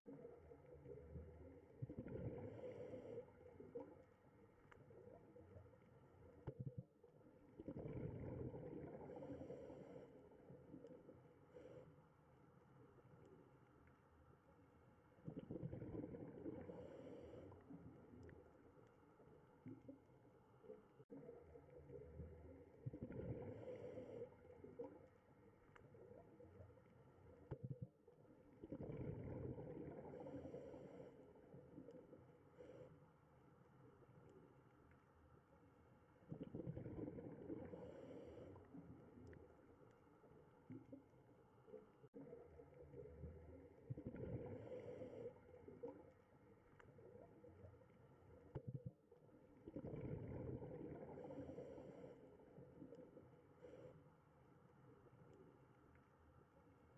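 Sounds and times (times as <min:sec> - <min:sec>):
aquarium water gurgling: 0:07.5 - 0:10.0, 0:15.2 - 0:18.2, 0:27.8 - 0:31.0, 0:36.2 - 0:39.6, 0:48.6 - 0:52.0.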